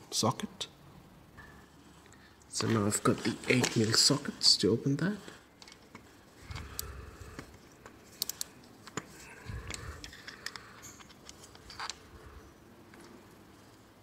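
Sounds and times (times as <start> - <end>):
socket driver metal clicks and scrapes: 5.2 - 12.1.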